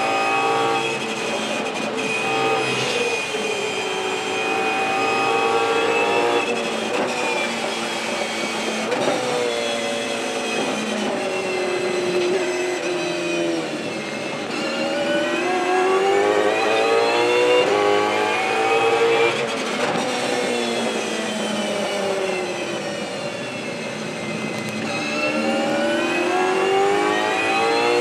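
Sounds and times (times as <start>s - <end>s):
car engine accelerating hard: 0.0s - 28.0s.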